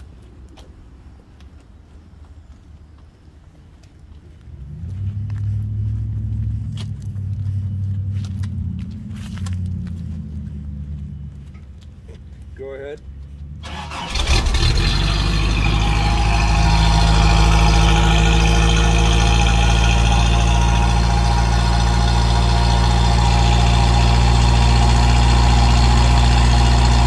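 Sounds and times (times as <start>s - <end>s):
pickup engine cranking and idling: 13.6s - 27.0s.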